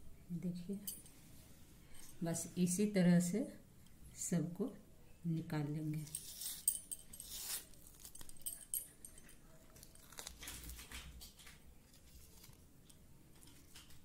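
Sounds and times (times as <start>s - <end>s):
fruit membrane wet crackling tearing: 7.2s - 8.4s, 9.6s - 14.0s.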